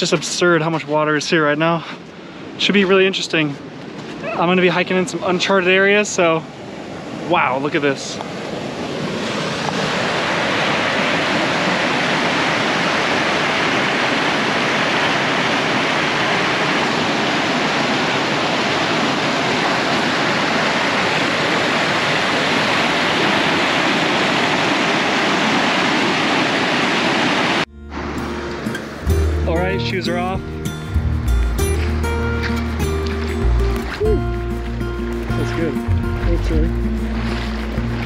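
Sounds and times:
river rushing: 0.0s - 38.0s.

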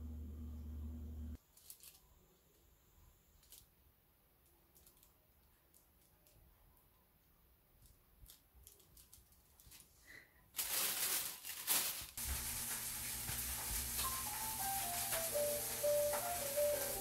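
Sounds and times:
handling clicks and crinkles: 1.4s - 2.1s, 3.4s - 3.7s, 4.4s - 10.0s, 10.6s - 16.4s
loud rustling burst: 10.6s - 17.0s
steady hiss: 12.0s - 17.0s
soft background music: 14.0s - 17.0s.

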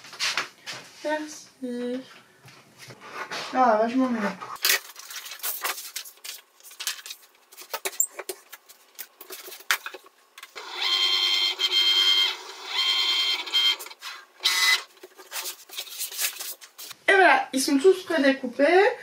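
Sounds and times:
clicks and rustles of sheets: 4.6s - 10.5s, 14.9s - 17.0s
cutting machine motor whining: 10.6s - 14.8s.

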